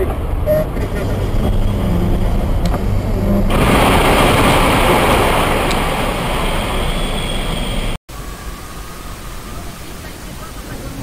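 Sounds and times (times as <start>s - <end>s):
low engine hum: 0.0s - 11.0s
tyres hissing on wet road: 3.5s - 8.0s.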